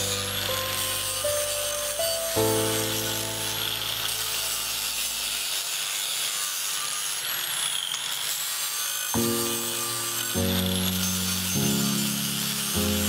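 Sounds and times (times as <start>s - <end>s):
background music: 0.0s - 5.0s, 9.2s - 13.0s
angle grinder grinding metal: 0.0s - 13.0s.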